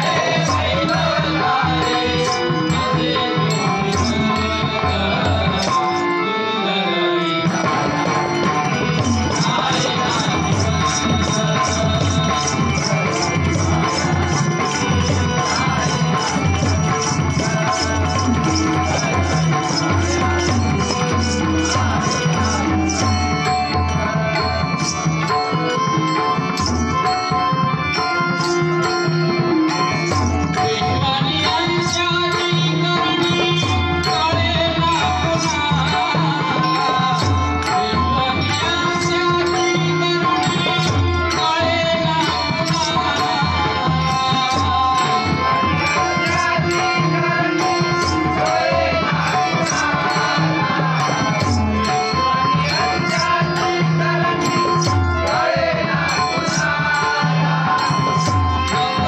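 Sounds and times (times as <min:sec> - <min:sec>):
harmonium: 0:00.0 - 0:59.0
person singing: 0:00.0 - 0:59.0
small hand cymbals striking: 0:08.4 - 0:24.0, 0:24.8 - 0:48.6.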